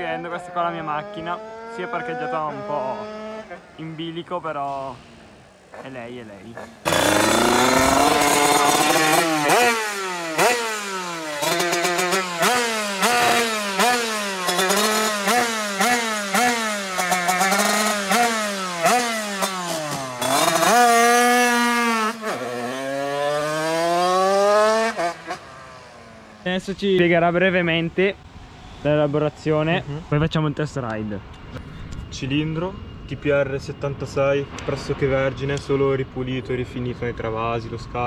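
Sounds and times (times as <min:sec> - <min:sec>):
two-stroke engine revving: 0:00.0 - 0:03.8, 0:05.7 - 0:26.4.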